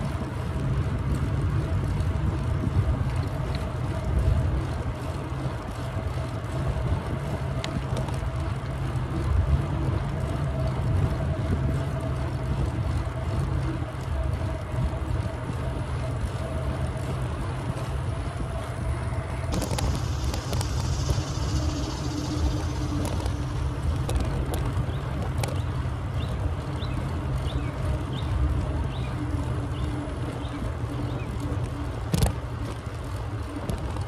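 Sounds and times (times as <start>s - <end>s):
faint steady hum: 0.0s - 34.0s
wind buffeting microphone: 0.0s - 34.0s
high hiss: 19.6s - 23.6s.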